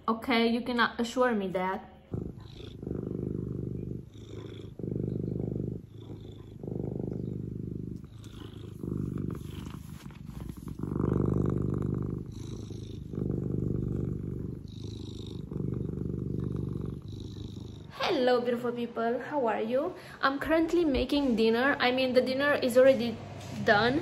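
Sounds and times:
cat purring: 1.7 - 19.4.

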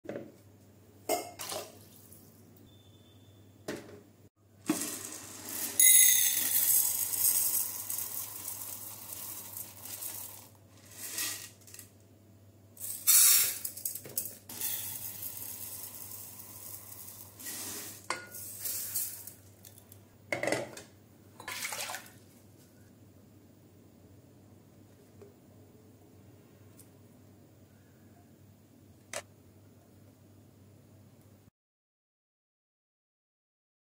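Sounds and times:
water pouring: 6.4 - 11.5, 21.4 - 22.2.

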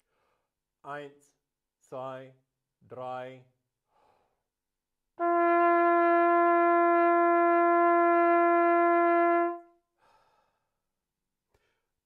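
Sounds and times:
hunting horn long note: 5.2 - 9.6.

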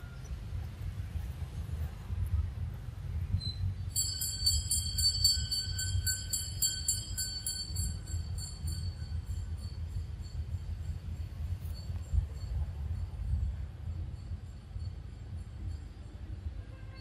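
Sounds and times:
small metal bell jingling: 3.8 - 16.4.

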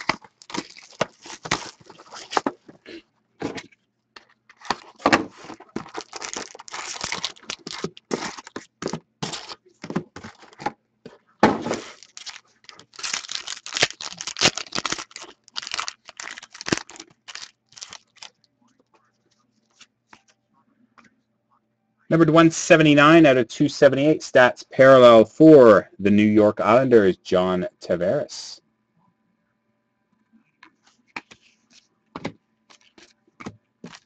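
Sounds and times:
packaging tearing and crinkling: 0.0 - 2.6, 4.5 - 9.6, 11.7 - 18.3.

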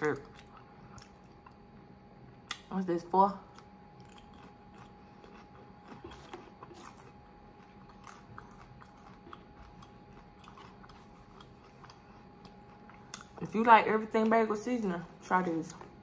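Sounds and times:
mouth chewing crunchy rice cakes: 0.0 - 2.7, 3.4 - 13.5.

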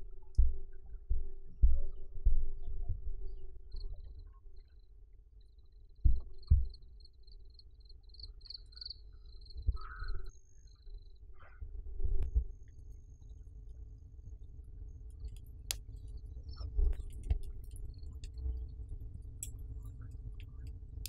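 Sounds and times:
dull low thumps: 0.0 - 3.6.

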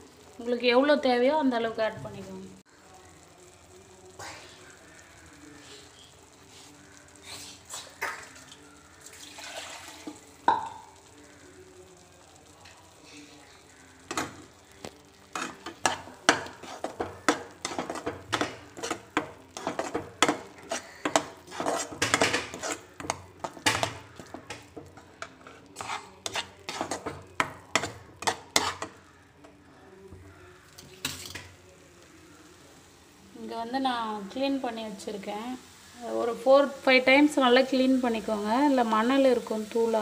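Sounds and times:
metal spatula scraping frying pan: 15.3 - 29.0.

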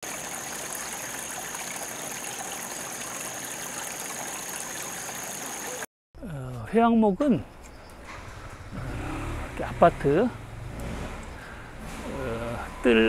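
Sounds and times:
running water rushing: 0.0 - 5.9.

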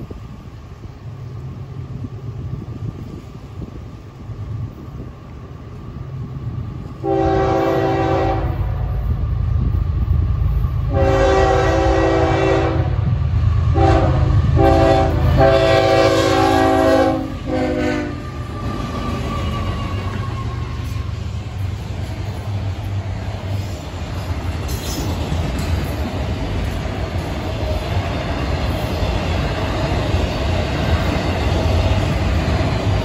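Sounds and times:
train rumble: 0.0 - 33.0
locomotive air horn blasts: 7.0 - 9.0, 10.9 - 13.1, 13.7 - 18.4.

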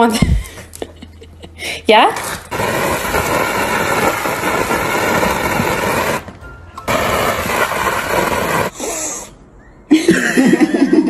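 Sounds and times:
pressure washer spraying glass: 2.4 - 9.0.

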